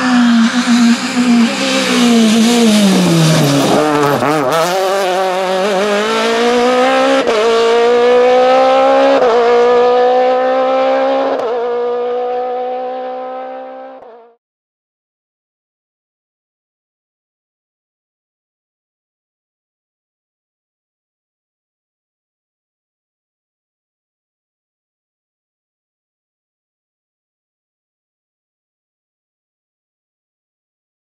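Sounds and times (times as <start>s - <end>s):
rally car engine revving: 0.0s - 14.4s.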